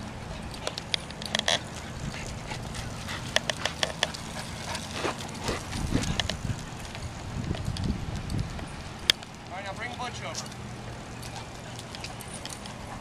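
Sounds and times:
dog panting: 1.5 - 6.6
wind rumble: 1.7 - 9.8.

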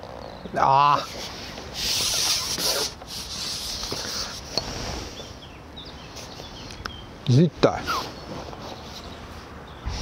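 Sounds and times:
wind rumbling on microphone: 8.2 - 10.0.

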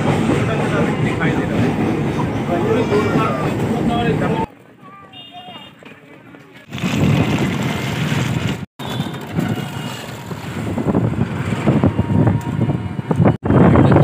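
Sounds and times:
road rumble: 0.0 - 14.0
wind buffeting microphone: 6.7 - 14.0.

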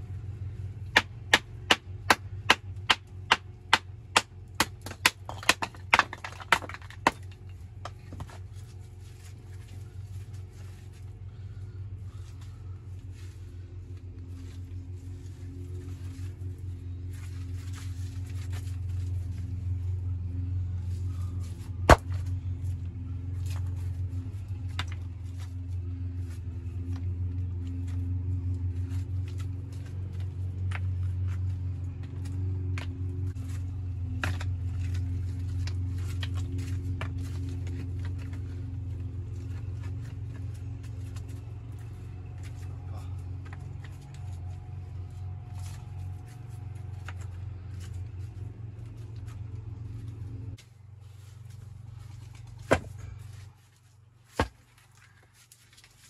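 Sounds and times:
steady low hum: 0.0 - 56.0
stones knocking and clinking: 4.2 - 8.4.

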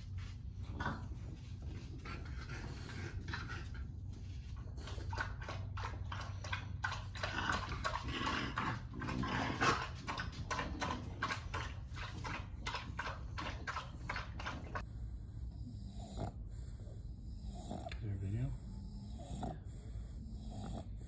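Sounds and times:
dogs whimpering and snuffling: 0.0 - 21.0.

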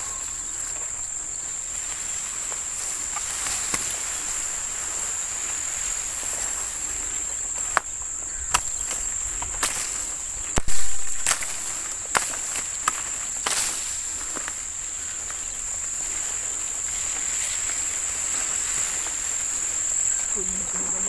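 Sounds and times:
insects buzzing: 0.0 - 21.0.

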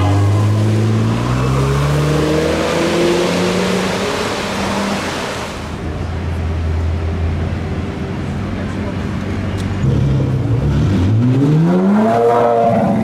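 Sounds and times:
car engine accelerating: 0.0 - 6.0.

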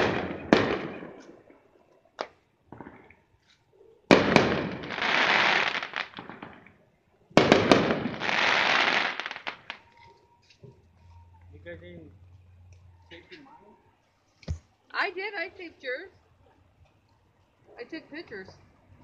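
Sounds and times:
firework crackling: 0.0 - 3.2, 4.1 - 10.1
fireworks bangs: 0.0 - 3.3, 4.1 - 10.2.

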